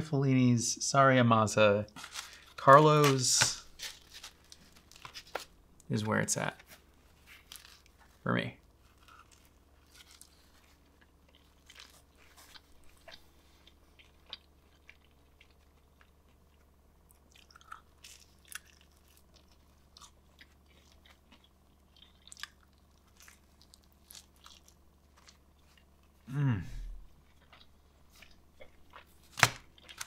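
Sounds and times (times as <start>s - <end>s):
steady low hum: 0.0s - 30.0s
biting and chewing pizza: 6.6s - 26.5s, 27.2s - 30.0s.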